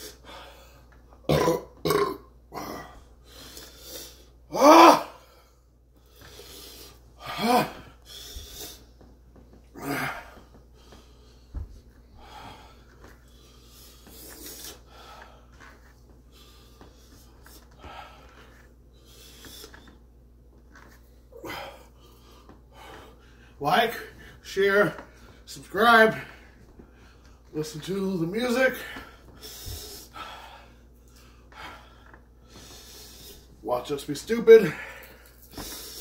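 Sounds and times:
man groaning in pain: 2.5s - 3.0s, 4.5s - 5.2s, 7.2s - 7.9s, 9.8s - 10.4s
man breathing hard: 5.1s - 9.1s, 9.7s - 20.0s, 21.3s - 24.4s, 28.6s - 33.6s.

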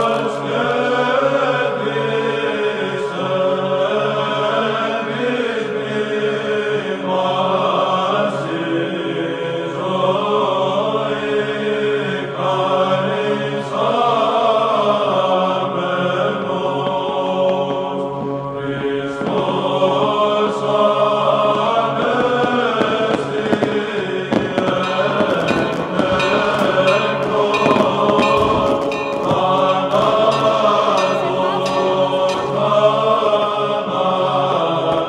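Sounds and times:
voices chanting: 19.0s - 35.0s
sharp cracks: 24.4s - 32.7s.

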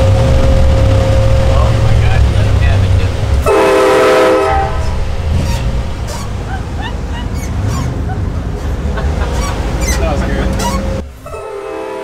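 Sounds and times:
engine and road rumble: 0.0s - 12.0s
train horn chord: 3.4s - 5.0s, 11.2s - 12.0s.

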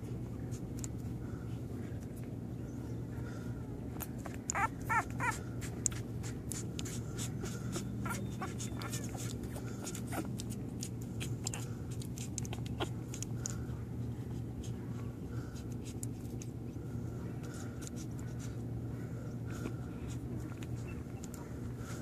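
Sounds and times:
steady low hum: 0.0s - 22.0s
puppies squeaking and whimpering: 4.1s - 13.3s
soft clicking and shuffling: 11.9s - 22.0s.

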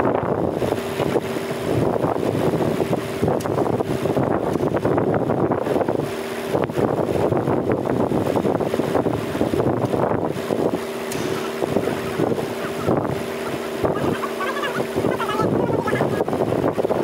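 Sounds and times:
wind buffeting microphone: 0.0s - 17.0s
vehicle engine idling: 9.0s - 17.0s.

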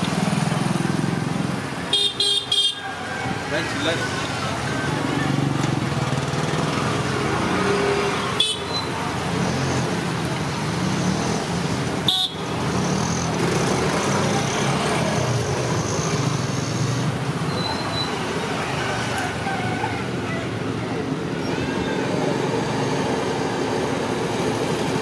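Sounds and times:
street traffic noise: 0.0s - 25.0s
car horns tooting: 1.9s - 4.0s, 8.4s - 9.0s, 12.0s - 12.6s.

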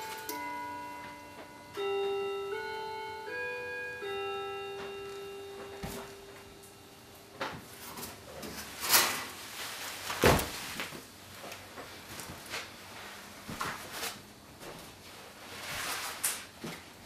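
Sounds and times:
electronic tune of held notes: 0.0s - 7.6s.

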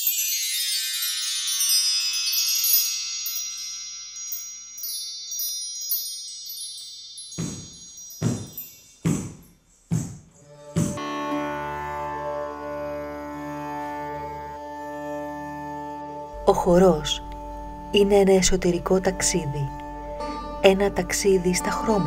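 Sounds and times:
ankle bells jingling: 0.0s - 11.0s
high chimes ringing: 0.0s - 11.1s
bare feet stamping on wood: 7.4s - 11.0s.

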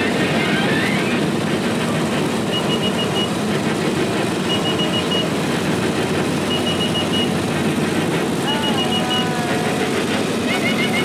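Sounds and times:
tractor engines driving past: 0.0s - 11.0s
short high electronic beeps: 4.5s - 5.3s, 6.5s - 7.3s.

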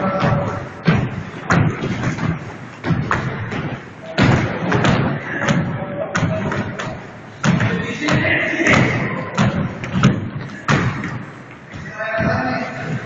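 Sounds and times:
background voices: 0.0s - 1.3s.

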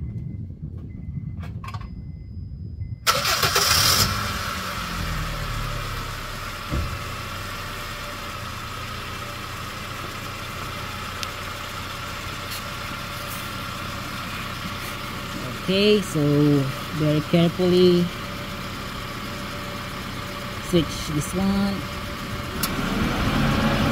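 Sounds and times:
engine starter cranking: 3.0s - 4.5s
car engine idling: 3.0s - 23.9s.

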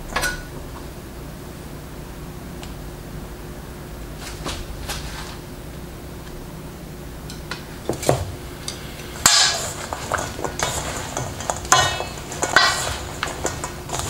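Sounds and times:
chopsticks clattering in metal bowl: 7.3s - 14.0s.

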